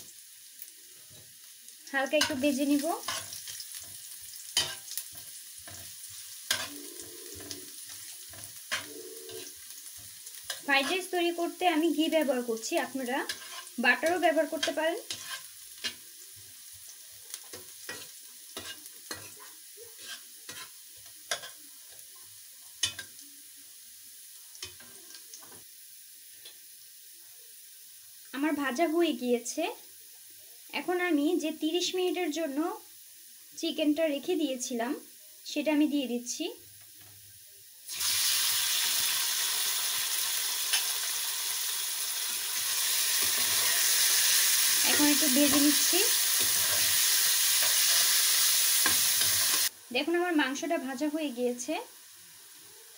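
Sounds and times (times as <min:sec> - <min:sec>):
garlic sizzling in a pan: 0:00.0 - 0:52.9
metal spatula scraping a pan: 0:02.2 - 0:11.2, 0:13.1 - 0:16.0, 0:17.4 - 0:21.6, 0:44.9 - 0:48.2.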